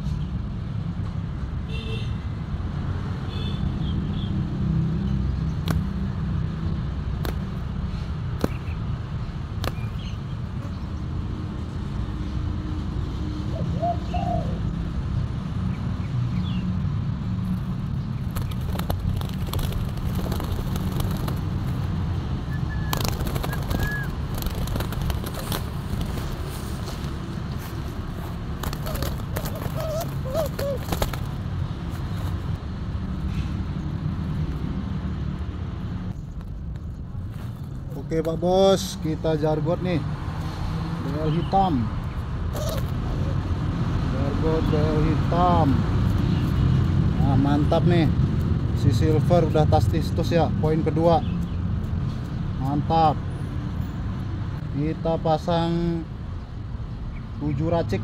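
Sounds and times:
sharp clicks and rustles: 18.2 - 22.0, 22.7 - 32.6
bird chirps: 22.4 - 24.2
low bird call: 22.5 - 24.2, 28.8 - 31.2.

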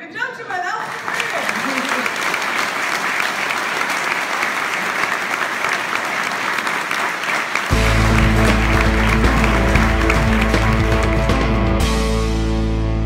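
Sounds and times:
audience applauding: 0.8 - 12.0
music with heavy bass: 7.7 - 13.0.

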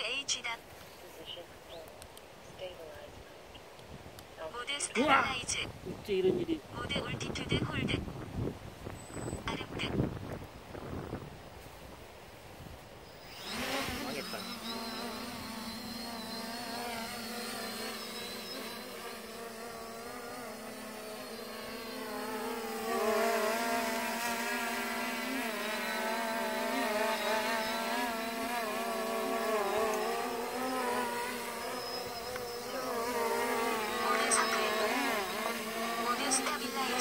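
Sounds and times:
drone propellers buzzing: 13.1 - 37.0.

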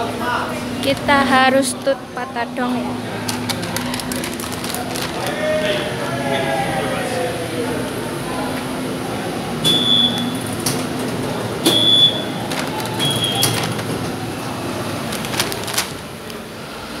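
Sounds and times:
turnstile clicks: 3.2 - 5.4, 9.6 - 16.5
card reader beeps: 9.6 - 10.5, 11.6 - 13.7.

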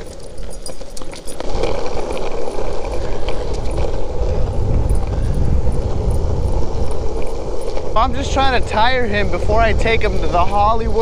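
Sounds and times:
longboard wheels rolling on asphalt: 0.0 - 11.0.

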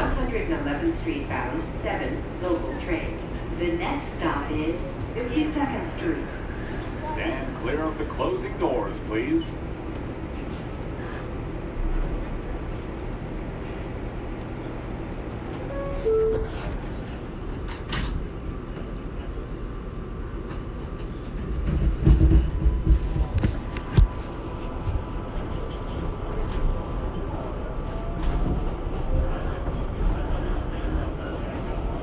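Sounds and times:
subway train rumbling: 0.0 - 32.0
train cars clattering over track: 20.4 - 24.1.

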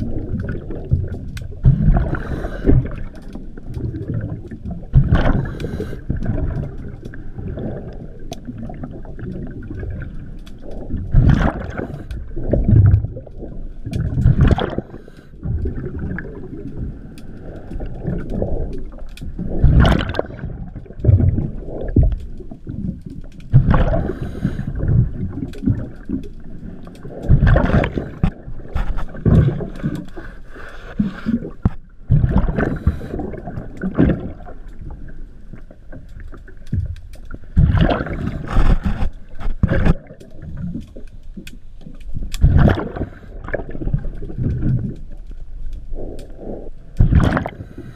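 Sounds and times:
steady underwater hum: 0.0 - 47.9
diver exhaling bubbles: 1.6 - 3.2, 3.8 - 10.1, 10.8 - 16.6, 17.8 - 22.9, 23.5 - 26.0, 27.2 - 30.3, 30.9 - 34.5, 37.6 - 40.8, 42.4 - 45.0, 46.0 - 47.9.

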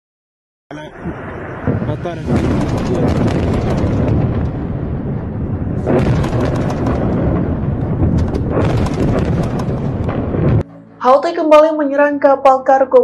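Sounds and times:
loud deep rumbling explosion: 0.7 - 10.7.

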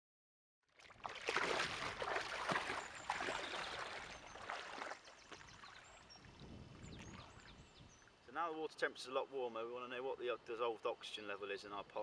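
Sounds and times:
person wading through water: 0.7 - 8.2.

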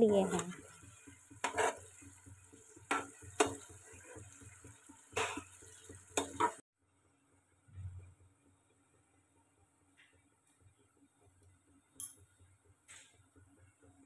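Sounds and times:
spatula scraping a frying pan: 0.1 - 6.6.

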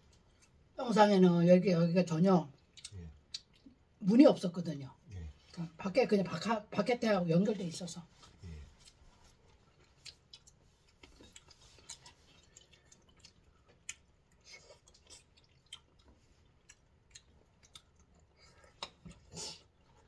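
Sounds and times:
faint chewing: 0.0 - 0.8, 2.5 - 4.0, 7.6 - 20.0.

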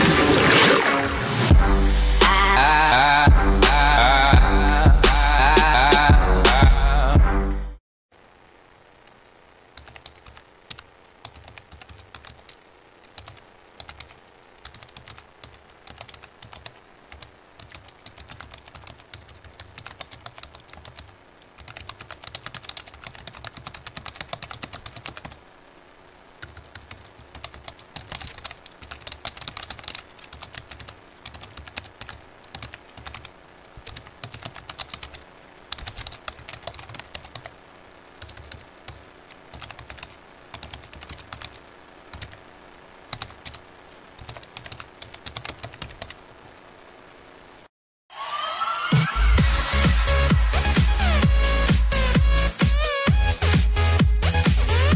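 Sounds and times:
computer keyboard typing: 9.8 - 25.4, 26.4 - 37.5, 38.2 - 42.4, 43.1 - 46.2.

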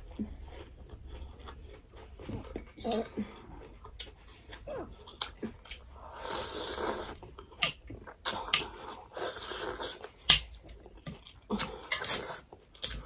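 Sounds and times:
noisy slurping of noodles: 6.0 - 7.2, 8.9 - 10.2, 12.0 - 12.5.

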